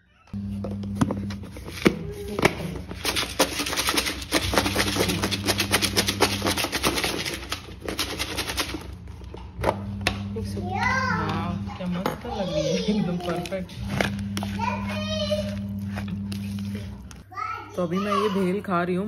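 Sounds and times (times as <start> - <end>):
dry snack rattling in plastic bowl: 2.9 - 9.0.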